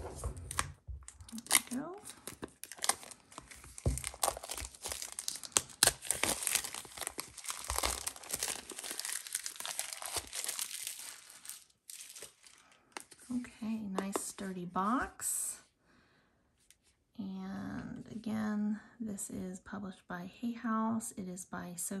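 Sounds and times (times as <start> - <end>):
plastic wrap crinkling and tearing: 0.0 - 13.4.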